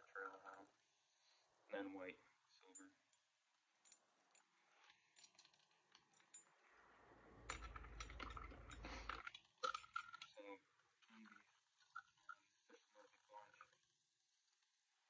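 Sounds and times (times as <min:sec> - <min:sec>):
rustling and handling noise: 0:03.8 - 0:06.6.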